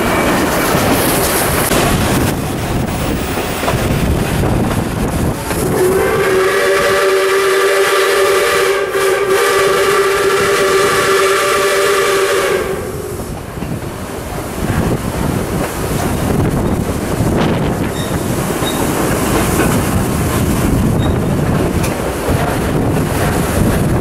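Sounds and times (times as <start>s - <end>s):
train rumbling and clattering: 0.0s - 24.0s
steam locomotive whistle blast: 5.6s - 13.3s.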